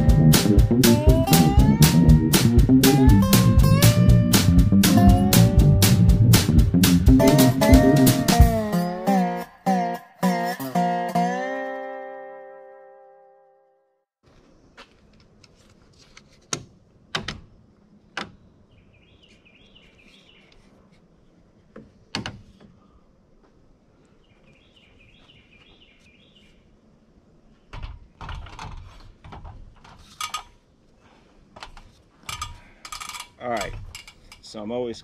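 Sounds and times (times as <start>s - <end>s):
bird singing: 18.3s - 20.6s, 24.1s - 26.7s.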